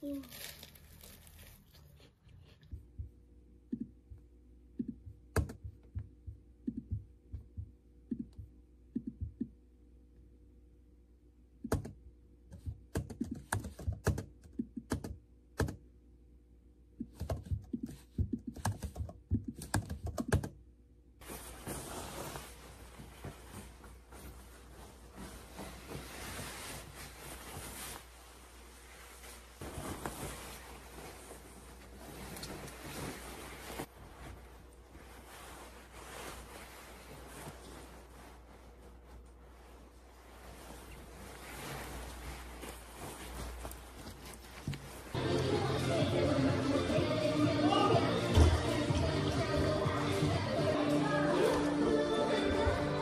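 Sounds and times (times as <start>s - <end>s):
typing on laptop keyboard: 12.6s - 15.8s, 17.0s - 20.6s.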